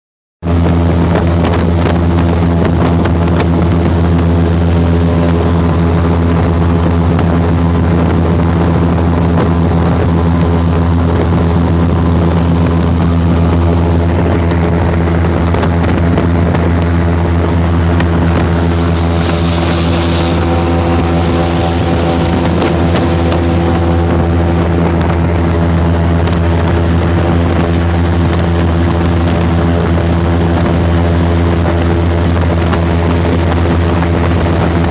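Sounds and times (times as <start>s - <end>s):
airboat engine and propeller drone: 0.4s - 34.9s
rush of air: 10.6s - 34.4s.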